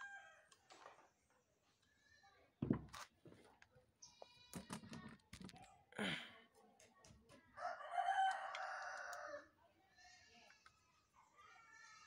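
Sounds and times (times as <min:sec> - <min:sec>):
rooster crowing: 0:07.6 - 0:09.5.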